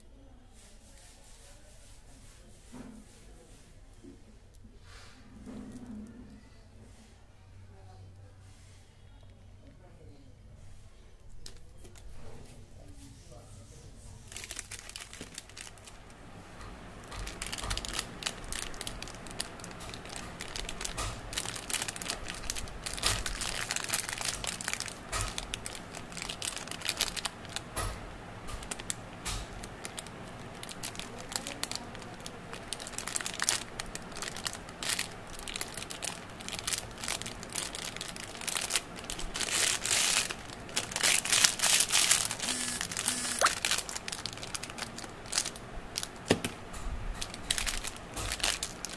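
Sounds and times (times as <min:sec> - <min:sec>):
hands crumpling candy wrappers: 0:14.3 - 0:16.1, 0:17.0 - 0:27.8, 0:28.6 - 0:29.0, 0:29.6 - 0:46.5, 0:47.2 - 0:48.9.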